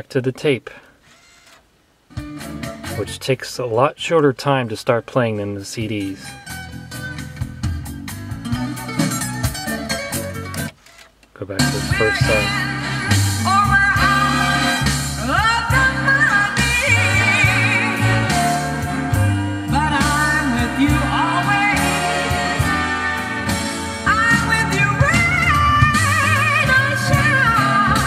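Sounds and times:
pop song through car speakers: 0:02.2 - 0:03.2, 0:05.9 - 0:10.8, 0:11.6 - 0:28.0.

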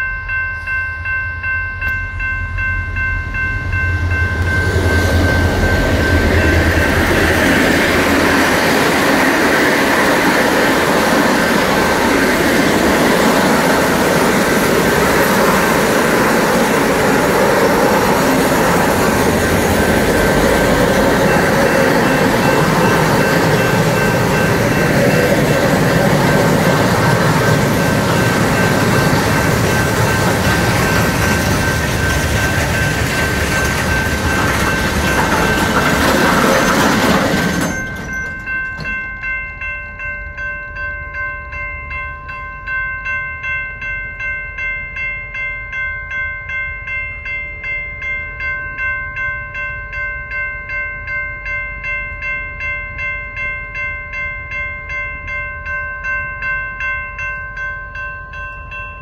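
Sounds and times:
freight train passing: 0:00.0 - 0:59.0
level crossing warning bell: 0:00.0 - 0:59.0
wheel-on-rail noise: 0:03.8 - 0:38.9.

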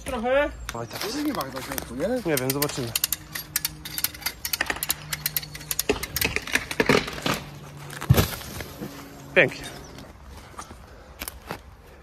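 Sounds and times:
wood cracking and splitting: 0:04.6 - 0:08.8.

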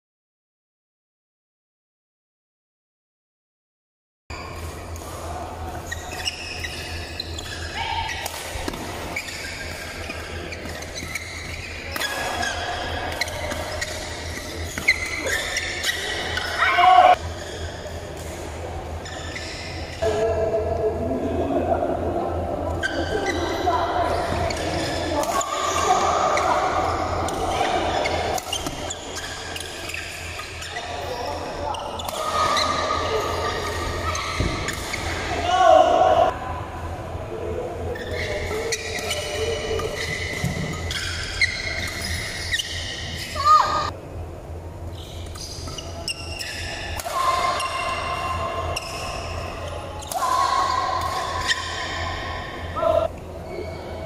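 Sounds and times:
rackets hitting shuttlecock: 0:06.7 - 0:16.6
steady low hum: 0:17.2 - 0:54.0.

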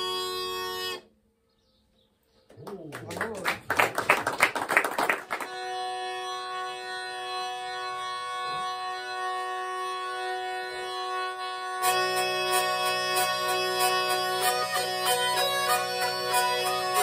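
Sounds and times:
bagpipe drone: 0:00.0 - 0:01.1, 0:05.3 - 0:17.0
bagpipe tune with other players: 0:00.0 - 0:01.2, 0:05.4 - 0:17.0.

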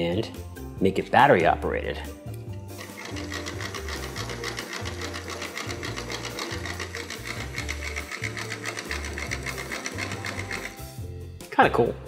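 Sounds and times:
plastic parts rattling: 0:02.8 - 0:10.8
small electric motor whirring: 0:02.8 - 0:11.0.

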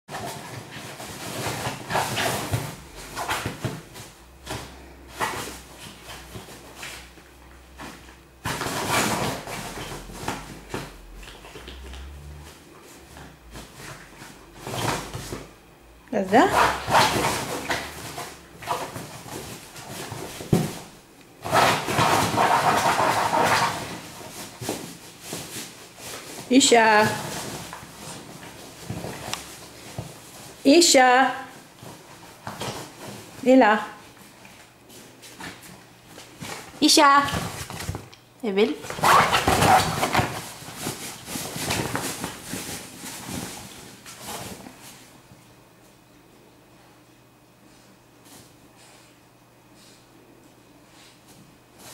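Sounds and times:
dog scratching at fabric bed: 0:16.5 - 0:20.3, 0:21.4 - 0:26.4, 0:38.9 - 0:44.5.

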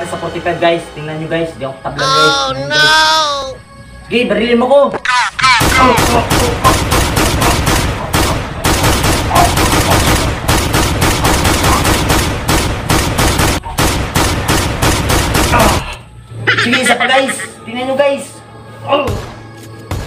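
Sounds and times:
rapid gunfire: 0:05.5 - 0:15.8.

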